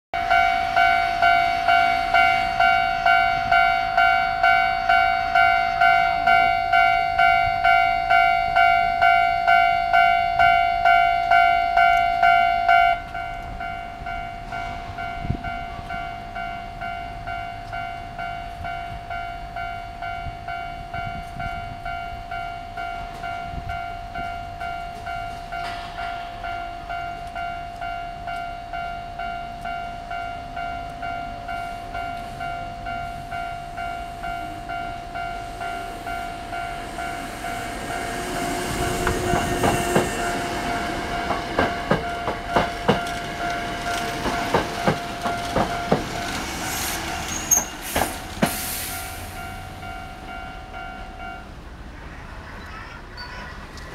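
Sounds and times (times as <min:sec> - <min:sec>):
train passing: 0:00.2 - 0:53.9
train wheels clacking on rail joints: 0:35.2 - 0:49.8.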